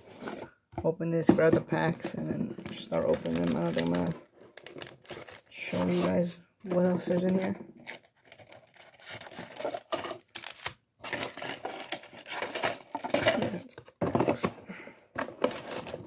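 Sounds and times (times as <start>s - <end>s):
foil packs crinkling: 2.7s - 13.6s.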